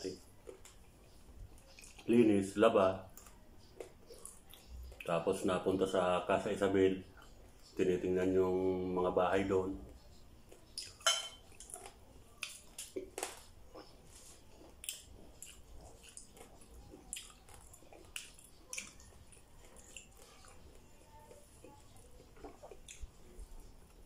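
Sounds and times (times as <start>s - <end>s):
man chewing: 0.1s - 2.2s, 3.0s - 5.9s, 9.9s - 24.0s.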